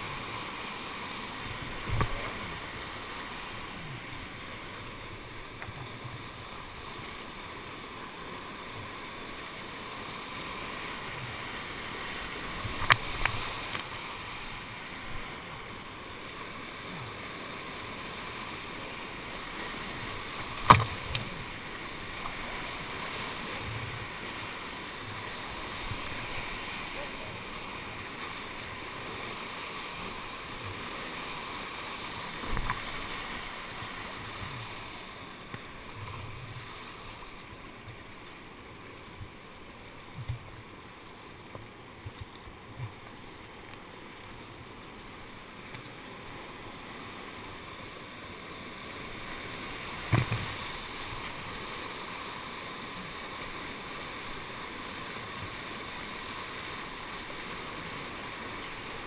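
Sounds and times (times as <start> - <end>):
whitewater rushing: 0.0 - 59.0
knocks and splashes: 20.4 - 21.4, 50.0 - 50.6.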